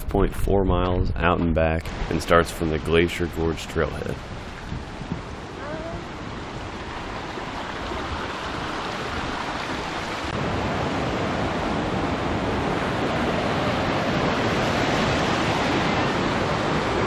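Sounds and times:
creek water rushing: 1.8 - 17.0.

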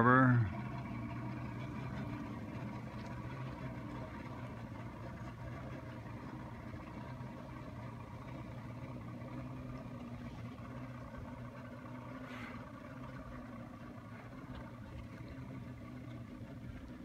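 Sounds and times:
motorboat engine running: 0.0 - 17.0.

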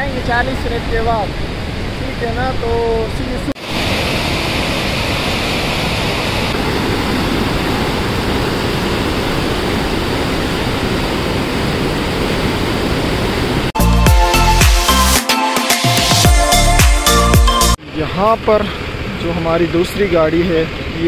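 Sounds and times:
river rushing over boulders: 0.1 - 13.8
loud music with a beat: 13.8 - 17.8.

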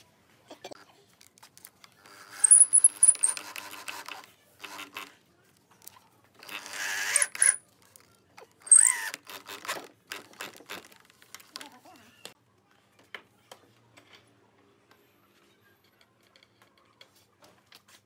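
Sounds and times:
cordless drill boring into wood: 6.4 - 7.6, 8.6 - 10.6.

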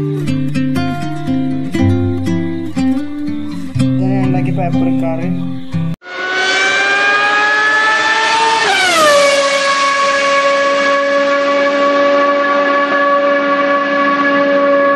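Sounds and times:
racing car engine whine: 6.0 - 14.9.

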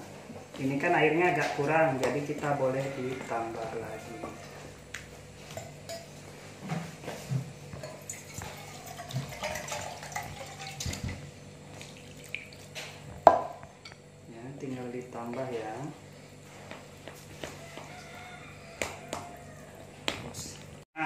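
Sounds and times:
water pouring: 7.9 - 12.8.

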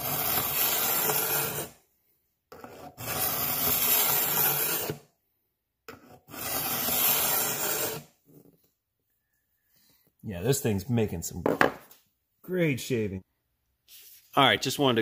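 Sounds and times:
sharpener rasping on machete: 0.0 - 1.7, 2.6 - 5.0, 6.0 - 8.1.

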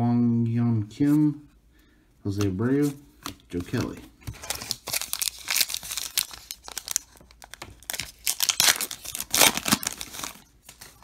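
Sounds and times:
wrapper tearing and crinkling: 4.4 - 11.0.

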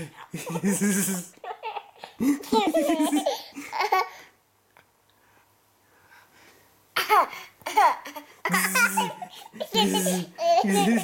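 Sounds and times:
baby laughing: 0.0 - 4.2, 7.0 - 11.0.

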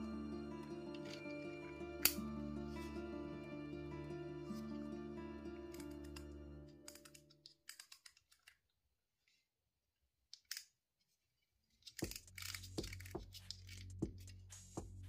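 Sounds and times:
background music with steady beat: 0.0 - 6.7, 12.0 - 15.0.

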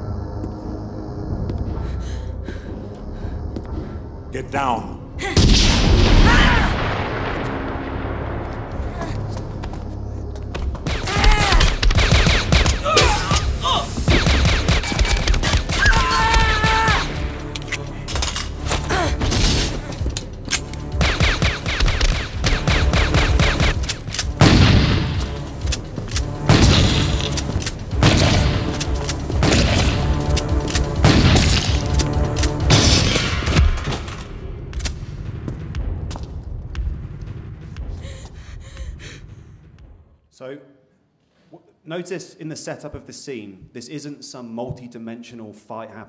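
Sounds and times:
film score: 0.0 - 46.0
rapid gunshots: 10.8 - 13.3, 14.0 - 16.1, 20.9 - 25.2, 26.4 - 33.8
shotgun blasts: 26.4 - 27.4, 29.4 - 30.2.

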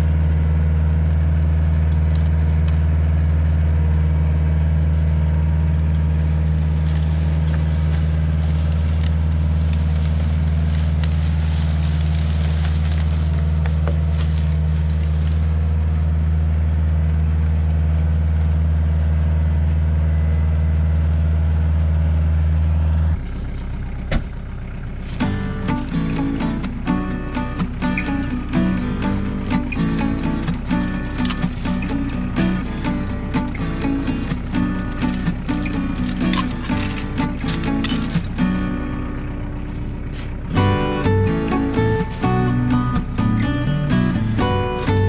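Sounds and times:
tractor diesel engine humming: 0.0 - 45.0
crackling: 5.0 - 18.6, 24.7 - 45.0.

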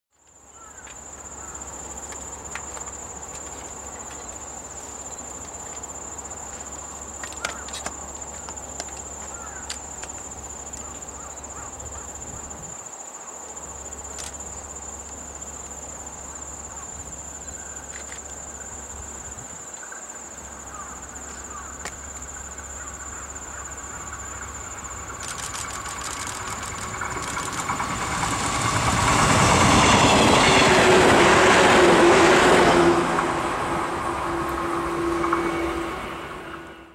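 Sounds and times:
train wheels clicking: 0.2 - 11.3, 24.0 - 36.8
insects trilling: 0.2 - 36.9
electric train approaching: 0.3 - 12.8, 13.4 - 36.9.

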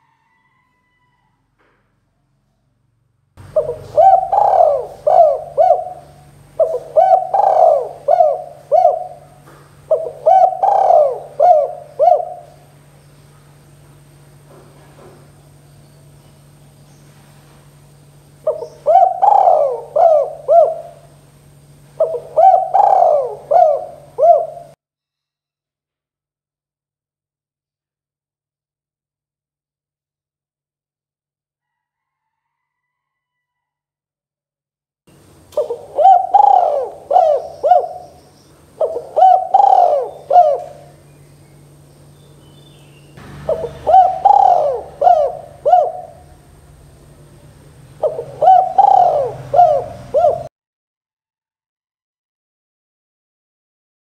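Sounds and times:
dove cooing: 3.4 - 12.9, 18.3 - 24.8, 35.4 - 41.1, 43.3 - 50.5.

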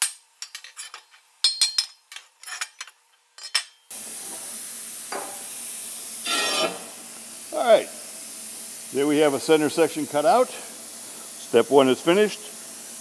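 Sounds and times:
steady hiss: 3.9 - 13.0.

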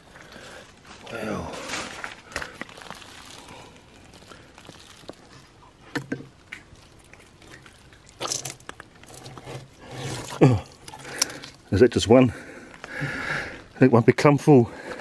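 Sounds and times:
oyster shells crunching: 0.0 - 11.7.

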